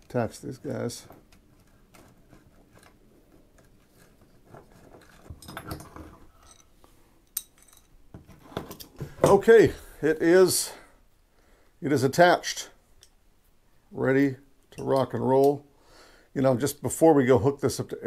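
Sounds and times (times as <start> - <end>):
metal tools clinking and scraping: 4.7 - 9.4, 14.7 - 15.6.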